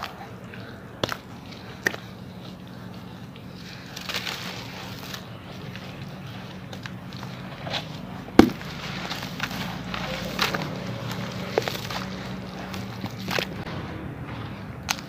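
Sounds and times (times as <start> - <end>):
sand-cement crumbling by hand: 6.6 - 13.6
sharp crack: 6.7 - 13.7.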